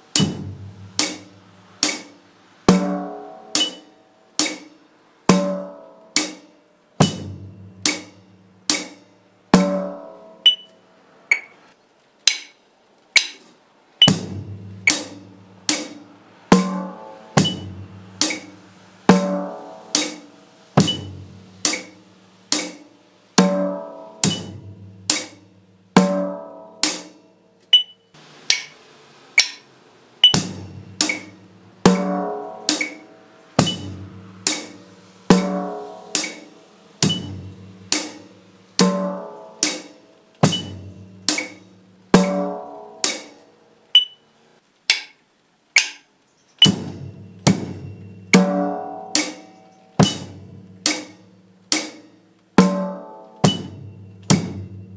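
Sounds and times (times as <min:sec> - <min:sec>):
drum kit playing: 0:00.0 - 0:10.7, 0:13.2 - 0:43.4, 0:46.6 - 0:54.9
click track ticking: 0:29.4 - 0:29.6.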